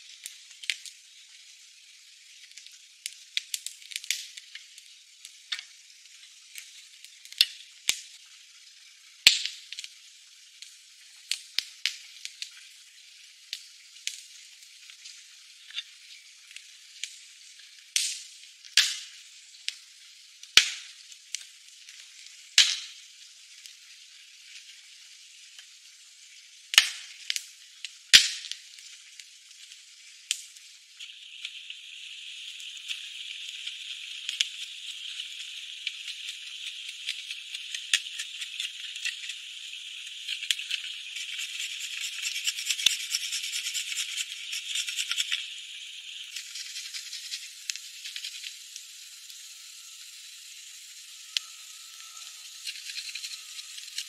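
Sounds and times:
steady high hiss: 0.0 - 3.4, 4.2 - 54.0
campfire crackling: 26.7 - 41.2.

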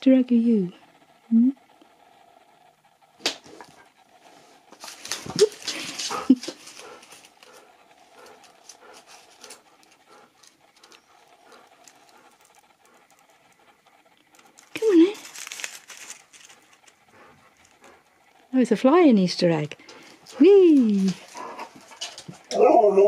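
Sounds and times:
dog claws clicking on wooden floor: 4.7 - 13.6
dog yelping: 22.4 - 23.0.

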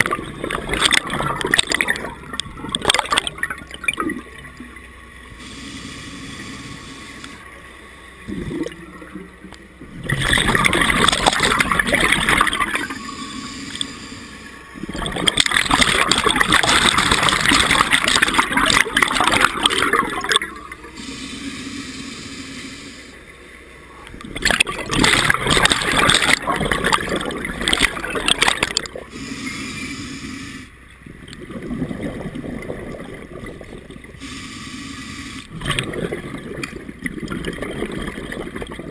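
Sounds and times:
quiet breathing through regulator: 5.3 - 8.3, 12.8 - 14.9, 20.6 - 24.1, 29.0 - 31.2, 34.1 - 35.6
diver exhaling bubbles: 10.0 - 13.0, 14.8 - 20.4, 24.4 - 30.2, 31.4 - 34.3, 35.5 - 38.9.

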